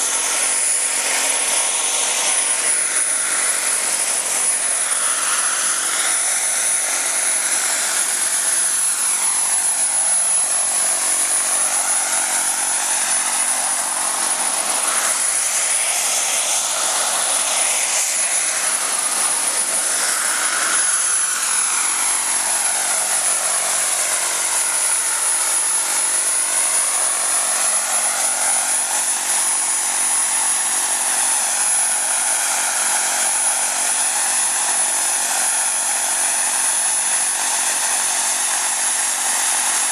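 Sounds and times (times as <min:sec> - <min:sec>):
rotor rush: 0:00.0 - 0:28.2
model helicopter turbine whine: 0:00.0 - 0:39.9.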